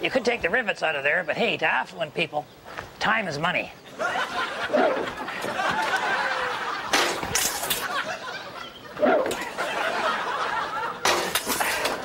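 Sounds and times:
audience laughter: 3.9 - 12.0
sledgehammer hitting metal: 6.9 - 7.7, 11.0 - 11.8.

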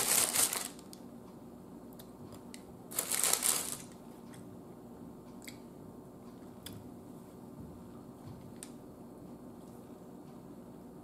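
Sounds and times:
paper bag crinkling: 0.0 - 0.8, 2.9 - 3.9.

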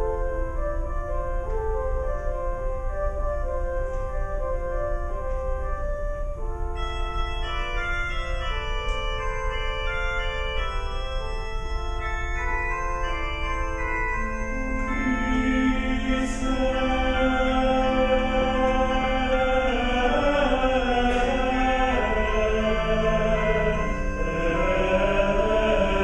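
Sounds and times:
organ playing sustained chords: 0.0 - 26.0.

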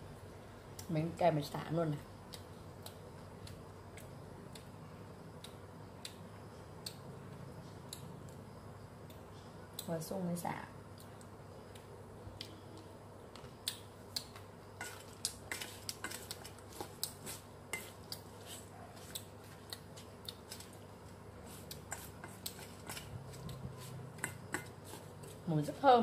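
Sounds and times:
faint low hum: 0.0 - 26.0
chopsticks clicking on metal bowl: 24.2 - 24.8.

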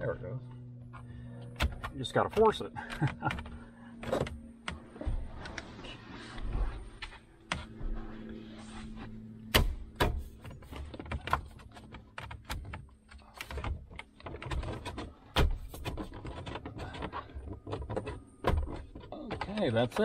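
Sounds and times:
faint steady hum: 0.0 - 20.0
plastic parts clicking and knocking: 9.6 - 20.0.

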